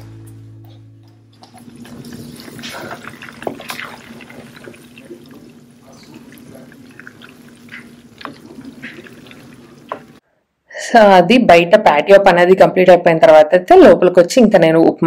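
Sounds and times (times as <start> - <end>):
butter bubbling and crackling: 1.4 - 10.2
wooden spatula stirring: 1.4 - 10.2.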